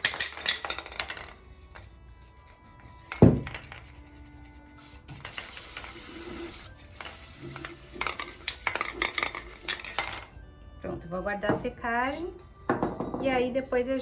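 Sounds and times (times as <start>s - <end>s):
aerosol can hissing: 4.7s - 10.1s.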